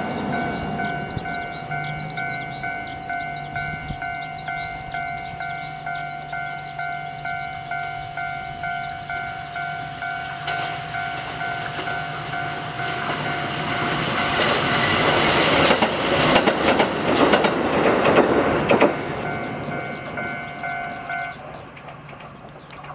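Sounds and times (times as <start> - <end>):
level crossing bell ringing: 0.0 - 14.9, 19.2 - 21.4
electric train passing: 0.0 - 22.9
train wheels clacking over rail joints: 10.4 - 22.9.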